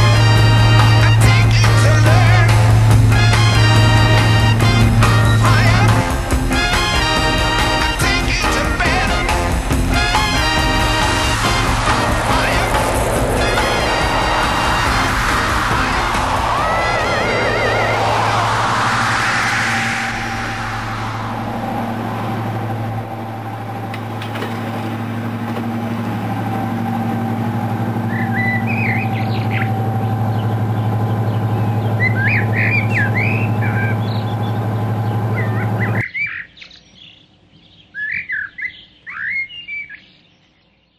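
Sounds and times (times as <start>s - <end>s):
diesel locomotive engine drone: 0.0s - 36.0s
birds chirping: 27.9s - 40.9s.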